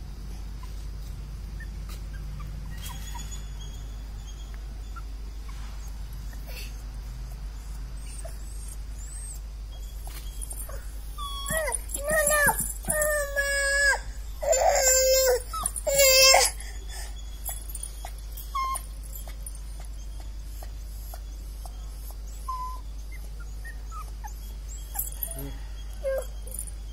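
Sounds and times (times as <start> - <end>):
dog whining: 0.6 - 26.9.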